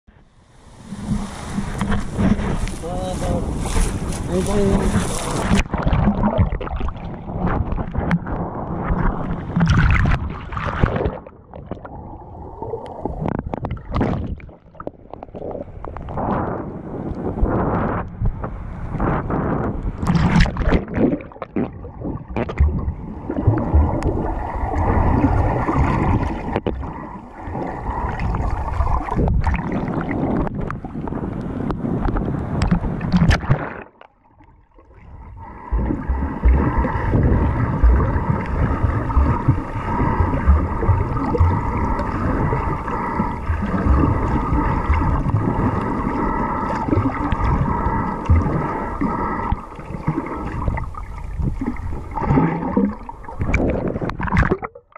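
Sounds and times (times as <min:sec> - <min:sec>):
underwater water rushing: 0:00.1 - 0:54.9
sharp splashes: 0:01.1 - 0:08.1.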